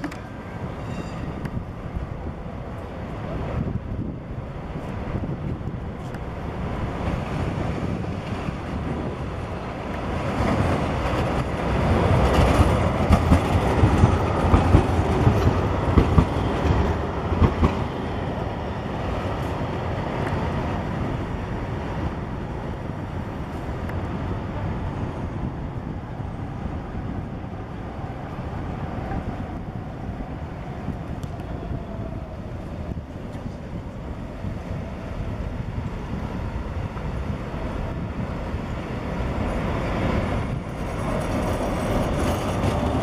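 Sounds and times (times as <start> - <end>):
tram wheels rumbling: 0.0 - 43.0.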